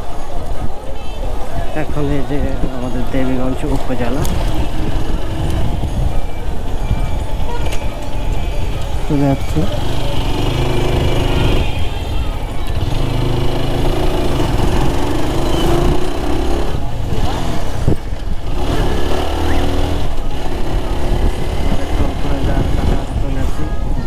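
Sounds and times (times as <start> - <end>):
motorcycle engine running: 4.2 - 23.4.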